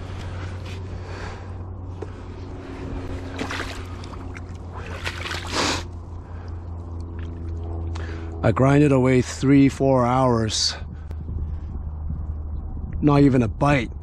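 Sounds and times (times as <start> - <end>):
steady low rumble: 0.0 - 14.0
water splashing around fish: 3.2 - 5.9.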